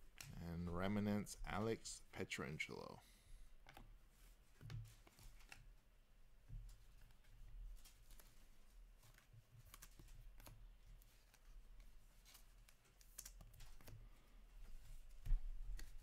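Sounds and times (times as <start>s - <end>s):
cards clicking and rustling: 4.5s - 5.8s, 6.7s - 14.1s, 15.7s - 16.0s.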